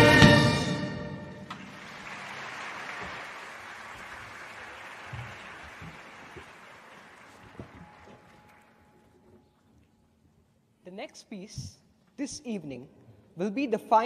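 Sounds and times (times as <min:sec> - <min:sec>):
audience applauding: 0:01.4 - 0:08.8.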